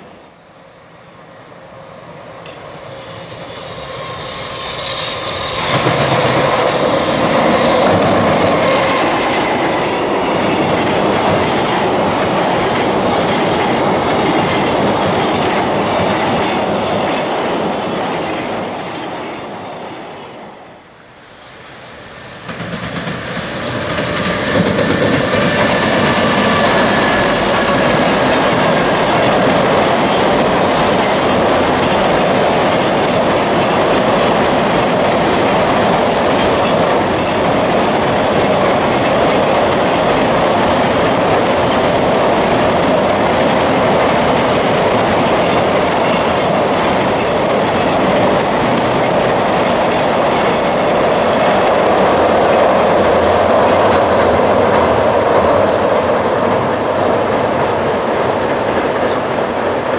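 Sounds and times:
electric locomotive motor whine: 0.0s - 16.4s, 23.3s - 30.9s
train wheels clacking on rails: 2.4s - 20.5s, 22.1s - 59.9s.

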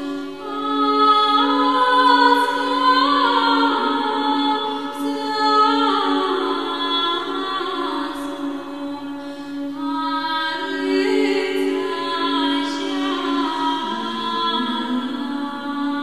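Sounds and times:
voices singing a chant: 12.6s - 16.0s
held low drone note: 13.7s - 16.0s.

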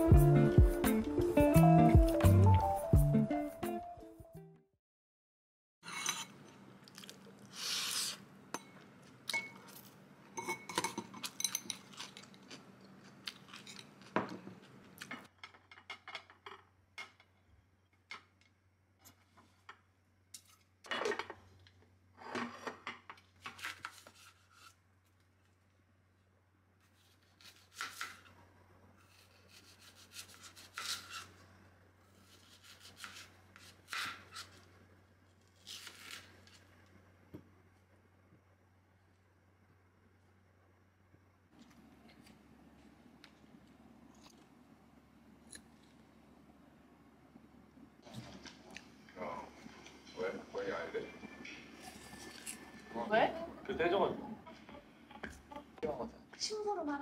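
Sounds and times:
cutlery scraping ceramic bowl: 5.8s - 6.4s.

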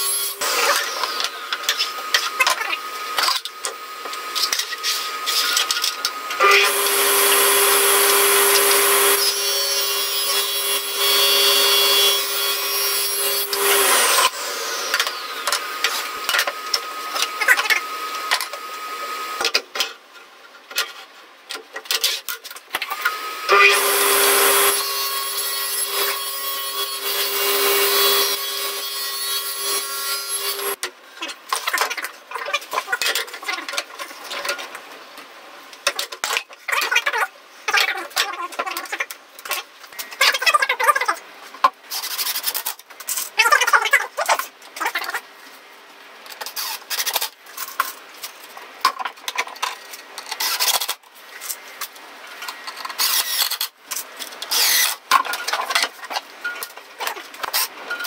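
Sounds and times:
table saw cutting wood: 0.0s - 19.5s, 22.9s - 30.8s, 54.5s - 55.0s.

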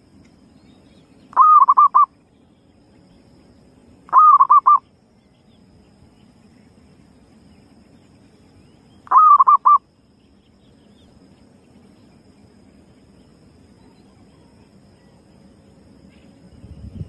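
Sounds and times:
dove cooing: 1.4s - 2.1s, 4.1s - 4.8s, 9.1s - 9.8s.

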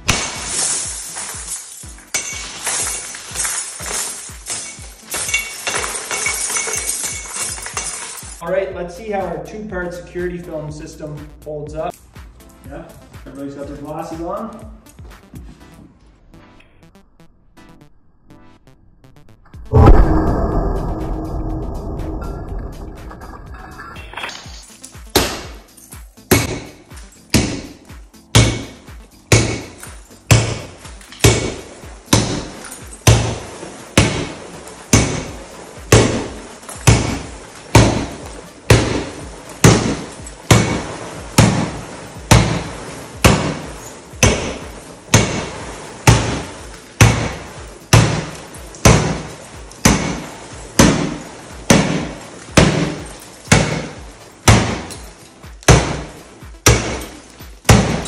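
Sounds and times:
crazed glass crunching and tinkling: 0.0s - 8.4s, 32.5s - 41.4s, 42.8s - 45.0s, 45.7s - 55.6s
bat striking glass door: 26.3s - 58.0s.

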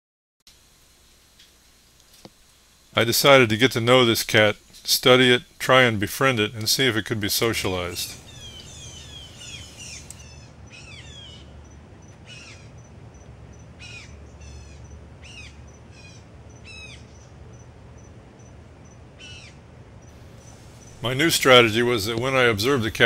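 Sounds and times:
birds chirping: 3.2s - 17.4s, 20.1s - 23.0s.

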